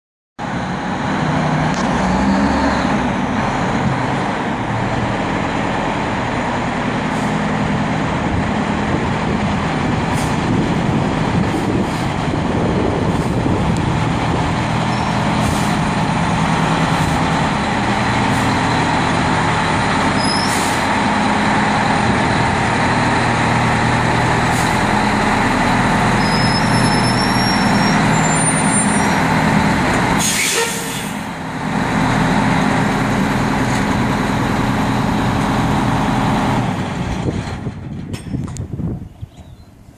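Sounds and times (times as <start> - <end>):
fire truck diesel engine running: 0.4 - 39.6
brief high squeals: 20.2 - 20.8, 26.2 - 29.2, 30.2 - 31.1.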